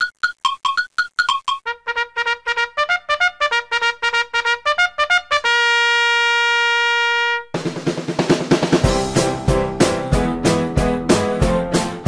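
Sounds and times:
brassy trumpet fanfare: 1.6s - 7.6s.

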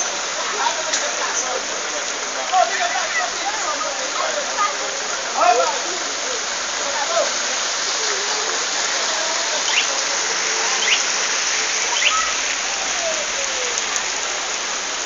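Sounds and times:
heavy rain falling: 0.0s - 15.0s
faint chirps: 10.8s - 11.1s, 11.9s - 12.4s.

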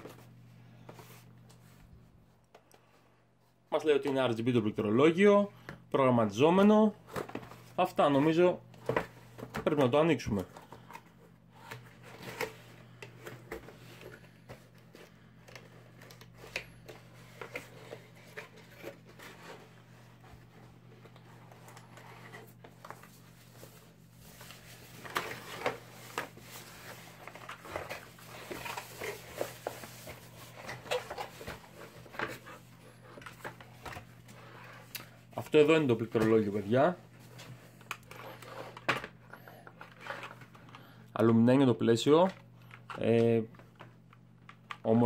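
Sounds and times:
wrapping rustling and scraping: 6.7s - 40.9s.

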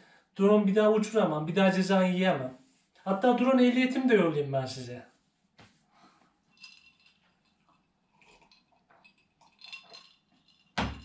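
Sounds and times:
light clinks: 6.5s - 11.0s.

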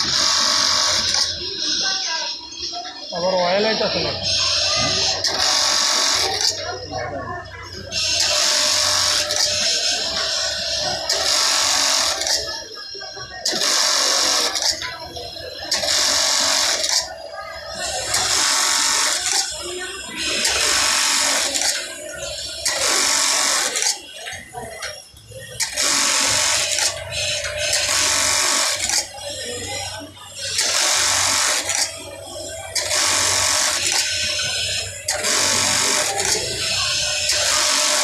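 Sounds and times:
sewing machine stitching rapidly: 25.6s - 26.9s, 30.6s - 31.9s, 32.8s - 34.1s, 35.1s - 36.5s, 37.3s - 38.0s.

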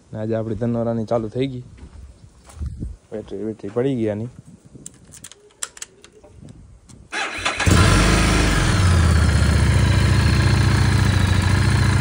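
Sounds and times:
engine starter cranking: 7.1s - 8.8s
engine idling: 7.5s - 12.0s.

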